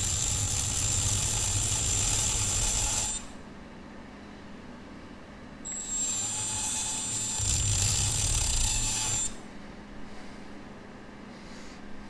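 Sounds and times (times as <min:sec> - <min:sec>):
rotary tool grinding metal: 0:00.0 - 0:03.3, 0:05.7 - 0:09.4.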